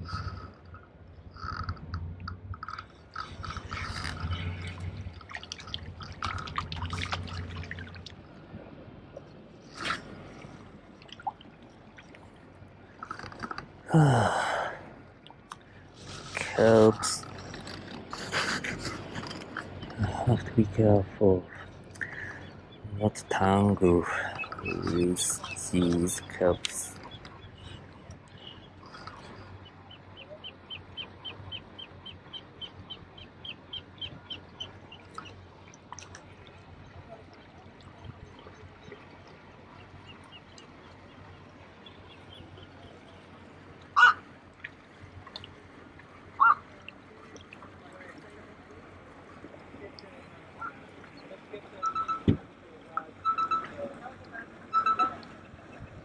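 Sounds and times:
man sighing: 13.9s - 14.9s.

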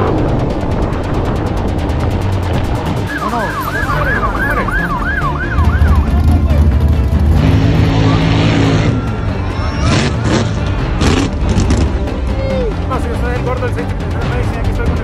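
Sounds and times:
race car engine drone: 0.0s - 14.5s
electronic siren yelping: 3.1s - 6.5s.

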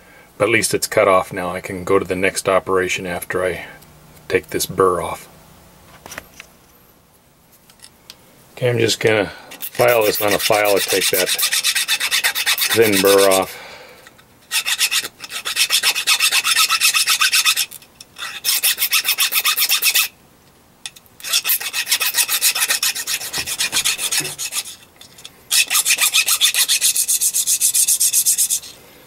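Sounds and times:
metal part scraping on file: 9.5s - 13.5s, 14.5s - 20.1s, 21.2s - 28.8s.

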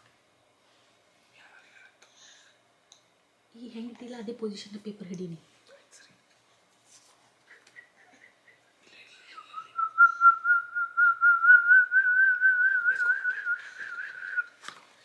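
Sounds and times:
person whistling a long note: 9.4s - 14.6s.

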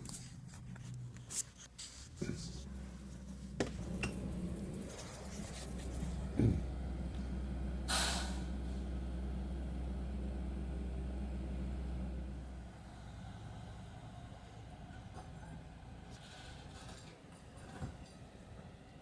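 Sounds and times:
heavy equipment engine hum: 0.0s - 19.0s
knocks and clunks: 2.2s - 7.2s
short hiss: 7.9s - 8.4s.

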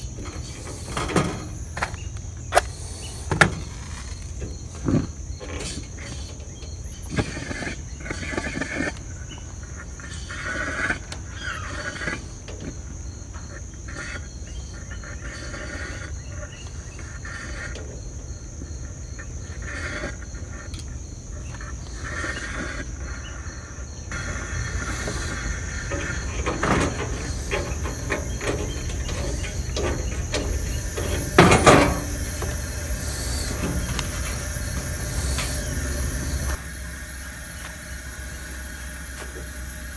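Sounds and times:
camp stove flame hissing: 0.0s - 39.9s
fuel valve clicks and squeaks: 5.3s - 10.3s, 24.1s - 36.9s, 37.5s - 39.9s.

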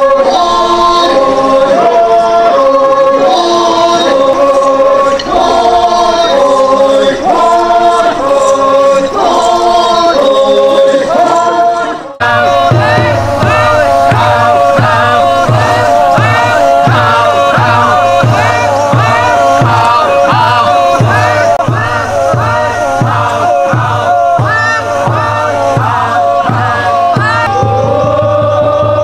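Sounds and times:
group singing in unison: 0.0s - 29.0s
music with low bass beat: 12.2s - 29.0s.

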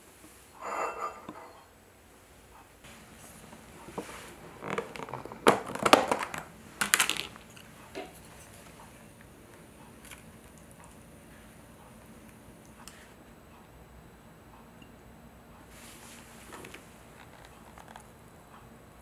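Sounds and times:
plastic lid crackling: 4.5s - 7.4s.

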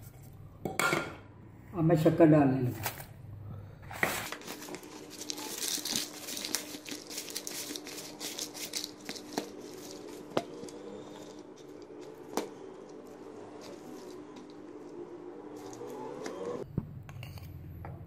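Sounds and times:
bread tearing and crumbling: 4.0s - 14.8s.

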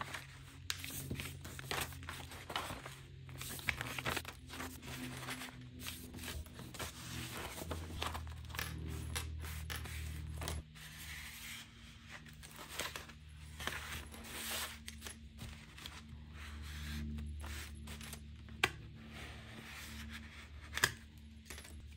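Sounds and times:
paper rustling and sliding: 0.0s - 8.3s.

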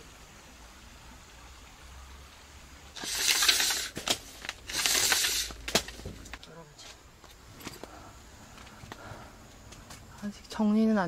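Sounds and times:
faint background hiss: 0.0s - 11.0s
plastic foil crinkling: 3.0s - 6.4s.

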